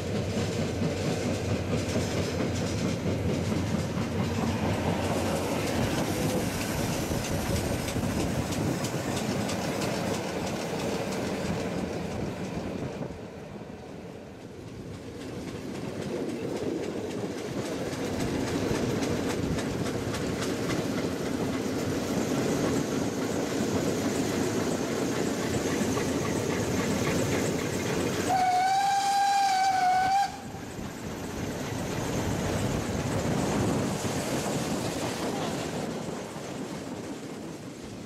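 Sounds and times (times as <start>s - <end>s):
train rail noise: 0.0s - 38.0s
steam locomotive whistle: 28.2s - 30.6s.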